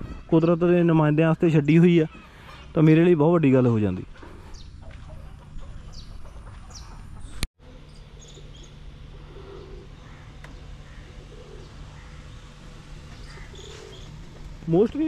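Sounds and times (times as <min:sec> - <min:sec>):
birds chirping: 0:00.0 - 0:15.0
faint steady hum: 0:01.2 - 0:15.0
low clucking bird calls: 0:01.6 - 0:03.0, 0:03.6 - 0:07.5, 0:08.1 - 0:14.6.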